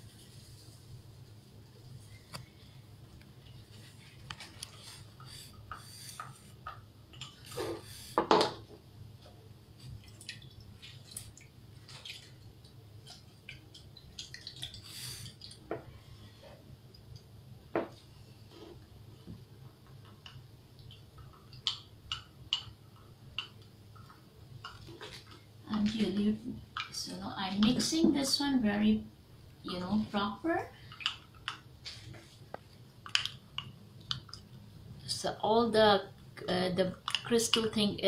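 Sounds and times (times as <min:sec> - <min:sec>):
plastic cups clicking and tapping: 0:30.7 - 0:34.5, 0:36.9 - 0:37.8.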